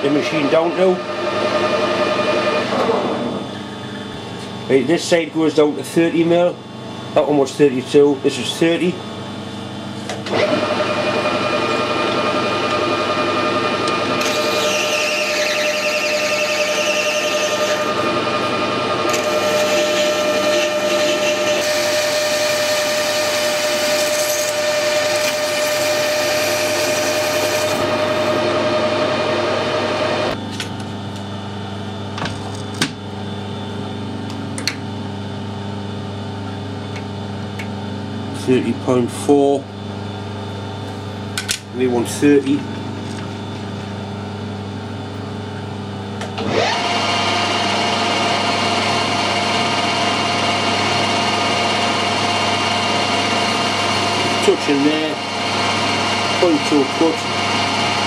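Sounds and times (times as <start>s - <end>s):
metal lathe whining: 0.0s - 3.4s, 10.2s - 30.4s, 46.2s - 58.0s.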